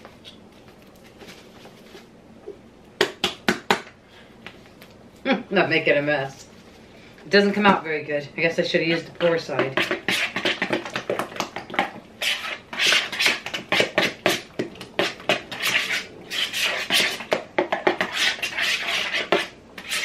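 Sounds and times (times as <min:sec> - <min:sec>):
spoon scraping mixing bowl: 0:08.9 - 0:20.0.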